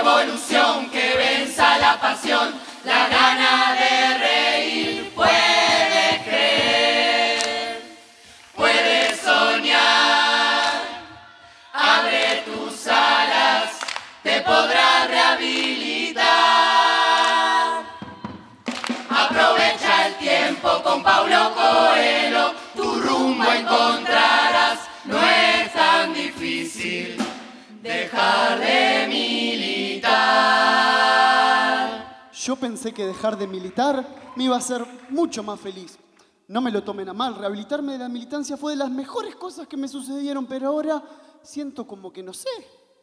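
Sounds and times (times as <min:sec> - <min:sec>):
chorus singing in harmony: 0:00.0 - 0:32.4.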